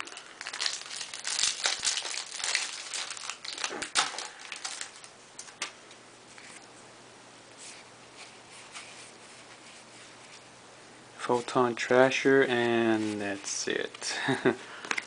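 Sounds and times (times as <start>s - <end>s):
foil wrapper crinkling: 0.0s - 5.7s.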